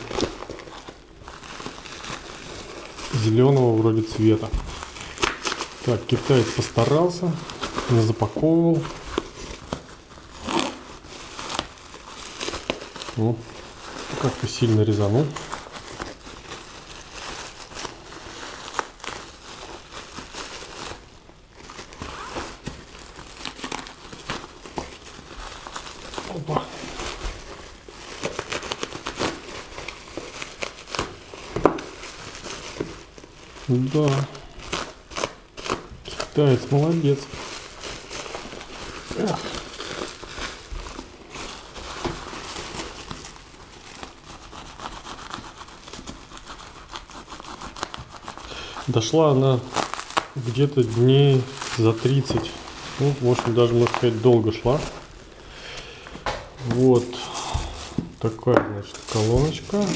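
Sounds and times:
plastic packaging crinkling: 0.0 - 59.9.

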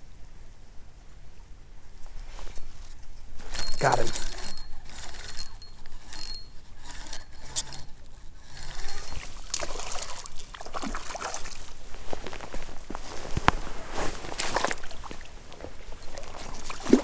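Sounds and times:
fishing reel cranking whine: 3.4 - 10.2
fish splashing in water: 9.4 - 11.7.

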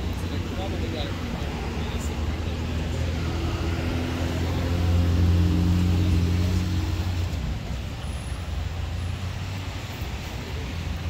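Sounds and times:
vehicle engine humming: 0.0 - 11.0.

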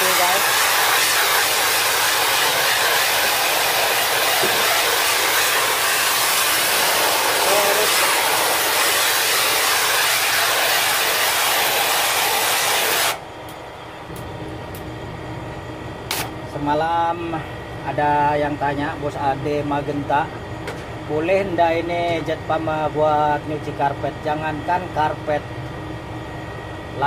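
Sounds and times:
water jet spraying hiss: 0.0 - 13.2
low hum: 13.2 - 17.9.

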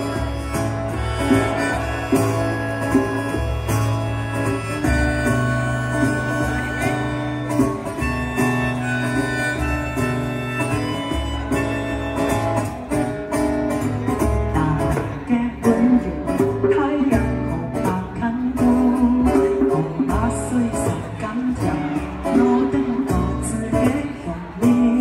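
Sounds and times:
harmonica melody: 0.0 - 13.6
strummed acoustic guitar: 0.0 - 25.0.

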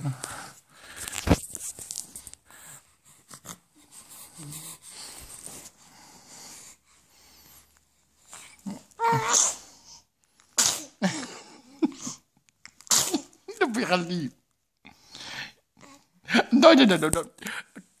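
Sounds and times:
infant wheezy outbursts: 8.3 - 10.1
infant crying: 8.7 - 9.5.

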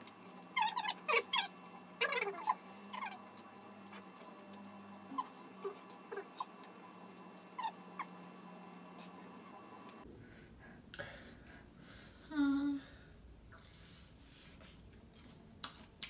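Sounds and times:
clicks of people eating: 0.0 - 10.1, 14.4 - 16.0
steady low hum: 0.0 - 16.0.

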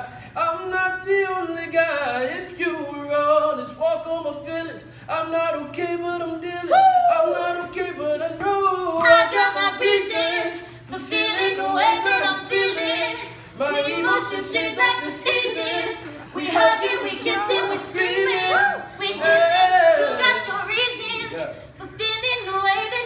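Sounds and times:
woman singing: 9.0 - 23.0.

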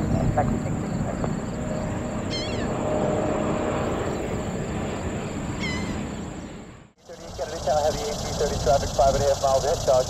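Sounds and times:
jet aircraft noise: 0.0 - 10.0
high wavering chirps: 2.2 - 2.8, 5.6 - 6.2.

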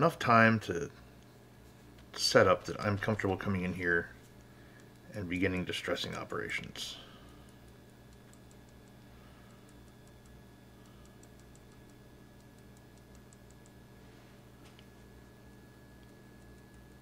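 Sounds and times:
low room hum: 0.0 - 17.0
paintbrush ticks dabbing: 3.0 - 6.7.

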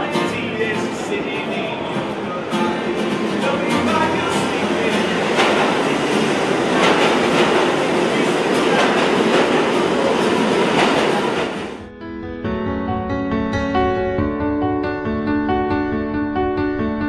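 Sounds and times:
train clacks and rattles: 0.0 - 11.8
subway train rumbling: 0.0 - 12.0.

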